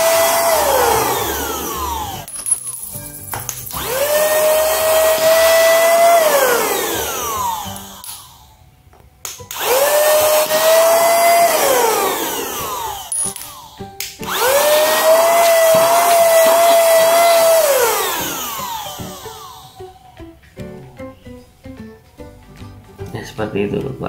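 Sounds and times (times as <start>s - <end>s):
handheld vacuum cleaner whine: 0.0s - 2.3s, 3.8s - 8.6s, 9.5s - 20.2s.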